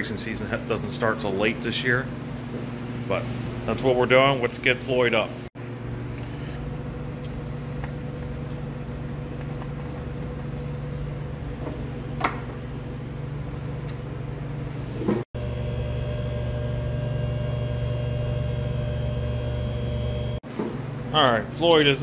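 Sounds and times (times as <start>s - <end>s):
shop hum: 0.0s - 22.0s
hydraulic pump humming: 15.0s - 20.4s.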